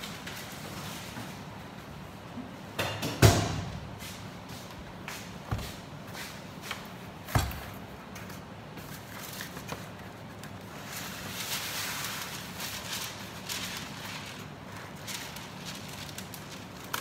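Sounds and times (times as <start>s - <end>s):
baking paper rustling: 4.0s - 17.0s.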